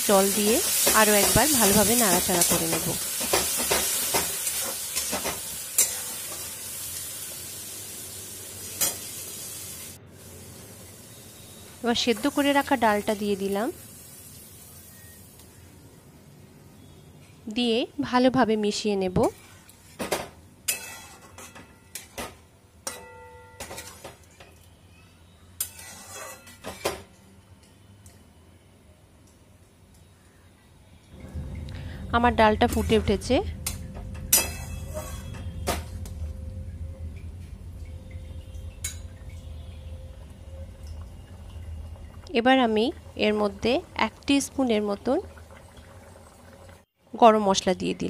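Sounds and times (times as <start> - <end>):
sizzling: 0.0 - 24.9, 25.5 - 28.7, 30.9 - 48.0
spatula scraping a pan: 20.7 - 22.1, 25.6 - 26.8, 34.3 - 35.6.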